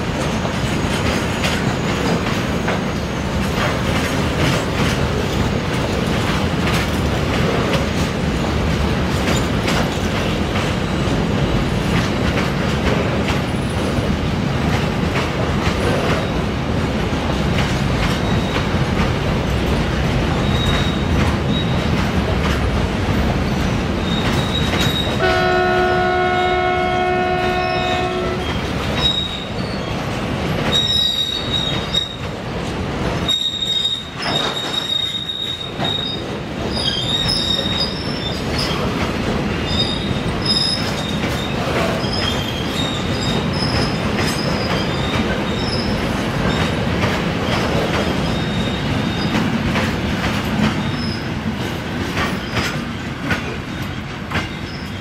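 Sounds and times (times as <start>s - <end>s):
train wheels rumbling and rattling: 0.0s - 55.0s
wheel squeals: 20.4s - 21.8s, 24.0s - 25.2s, 28.4s - 30.1s, 30.7s - 32.2s, 33.2s - 38.8s, 39.6s - 46.7s
train horn: 25.2s - 28.6s.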